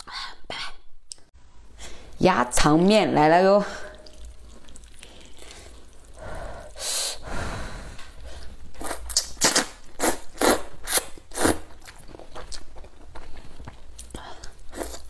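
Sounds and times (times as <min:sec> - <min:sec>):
breathy rush of air: 0:05.2 - 0:08.6
person slurping noodles: 0:07.9 - 0:11.7.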